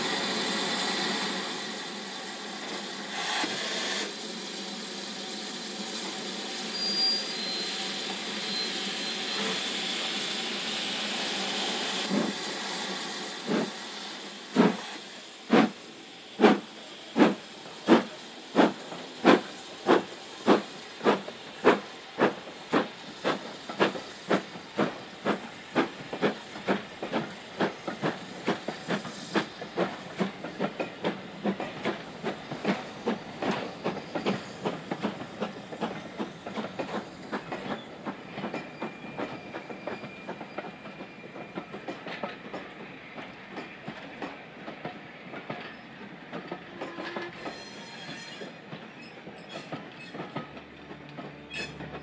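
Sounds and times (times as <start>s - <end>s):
steam hissing: 0.0s - 45.3s
steam locomotive exhaust chuffs: 0.0s - 52.0s.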